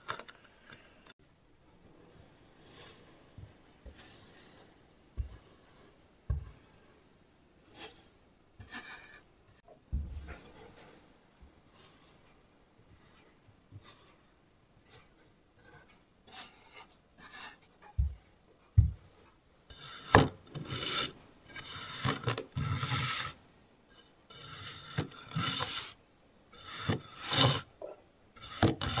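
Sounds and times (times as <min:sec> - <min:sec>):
knife scraping sand: 0:19.7 - 0:23.4, 0:24.3 - 0:26.0, 0:26.6 - 0:27.7, 0:28.4 - 0:29.0.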